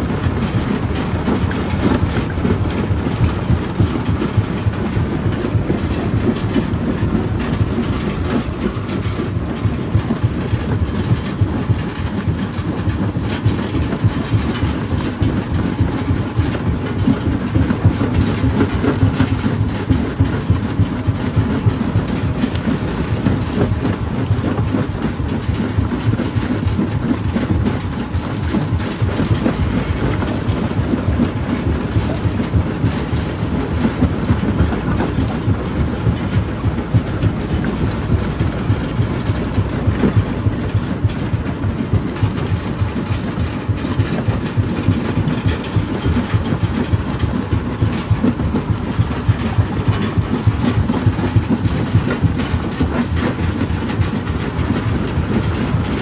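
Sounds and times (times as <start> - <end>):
crusher low rumble: 0.0 - 56.0.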